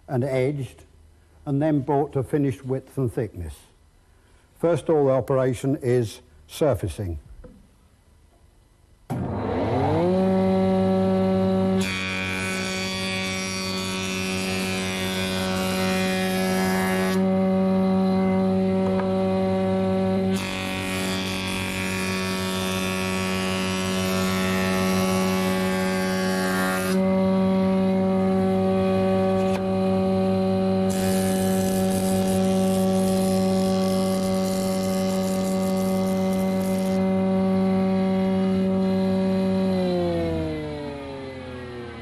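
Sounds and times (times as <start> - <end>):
planer motor humming: 9.2 - 42.0.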